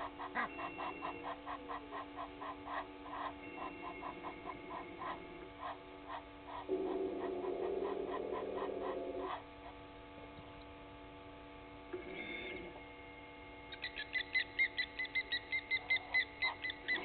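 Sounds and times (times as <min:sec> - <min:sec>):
pulsing animal chorus: 0:00.0 - 0:09.8
constant electrical hum: 0:00.0 - 0:17.0.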